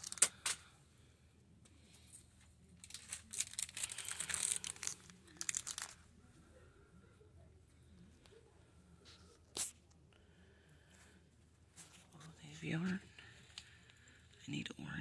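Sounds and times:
plastic packaging crinkling: 0:00.0 - 0:00.6, 0:02.7 - 0:06.0.

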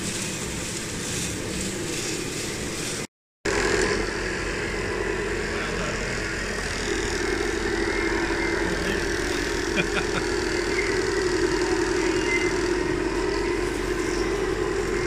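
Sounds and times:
sand pouring through screen: 0:00.0 - 0:03.1
model excavator mechanical hum: 0:00.0 - 0:15.0.

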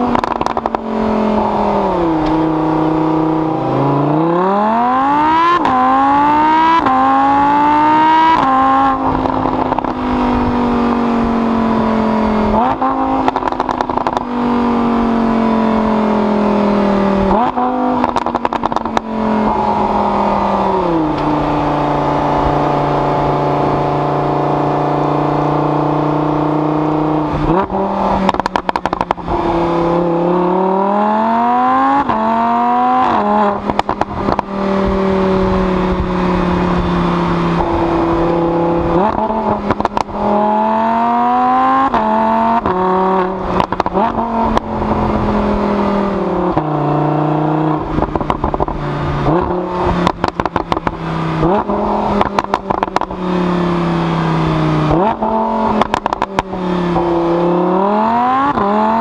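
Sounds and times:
car engine accelerating through shifts: 0:00.0 - 0:59.0
sharp exhaust pops: 0:00.1 - 0:00.8, 0:12.6 - 0:14.3, 0:17.4 - 0:19.1, 0:27.6 - 0:29.2, 0:33.0 - 0:34.5, 0:39.0 - 0:40.2, 0:43.5 - 0:44.7, 0:48.0 - 0:53.2, 0:54.9 - 0:56.6.

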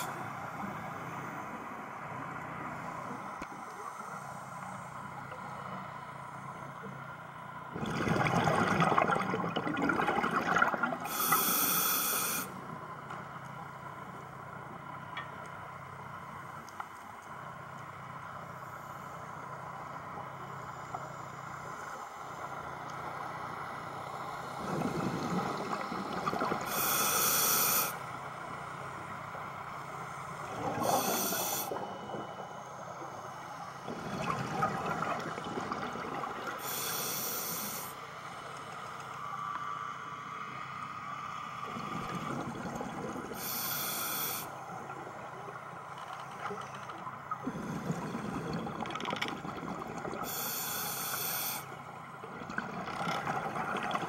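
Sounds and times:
exhaled bubbles rumbling: 0:07.7 - 0:11.2, 0:24.6 - 0:26.8, 0:33.8 - 0:36.6, 0:41.6 - 0:43.4, 0:46.4 - 0:50.3, 0:52.3 - 0:54.0
diver breathing through regulator: 0:11.1 - 0:12.6, 0:26.6 - 0:28.0, 0:30.7 - 0:31.8, 0:36.6 - 0:37.9, 0:43.4 - 0:44.5, 0:50.2 - 0:51.7.

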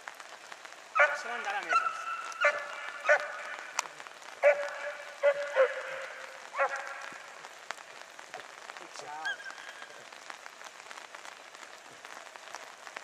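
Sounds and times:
crackle of fine clicks: 0:00.0 - 0:13.0
hound baying: 0:01.0 - 0:07.4.

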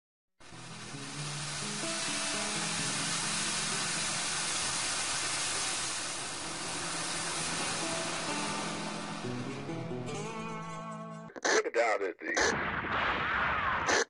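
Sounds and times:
steady hiss: 0:00.4 - 0:09.9
faint music: 0:00.4 - 0:10.7.

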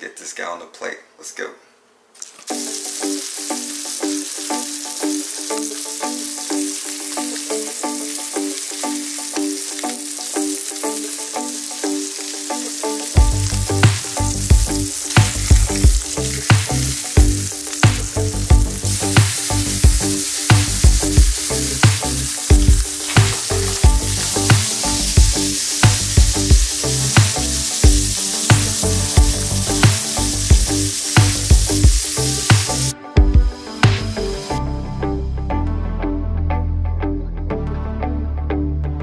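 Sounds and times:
fish sizzling in hot oil: 0:02.2 - 0:32.9
background music with steady beat: 0:02.5 - 0:39.0.

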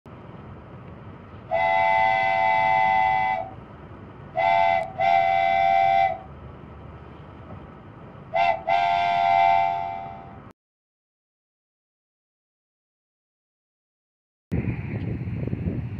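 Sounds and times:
locomotive air horn chord: 0:01.5 - 0:03.6, 0:04.3 - 0:06.3, 0:08.3 - 0:10.5.

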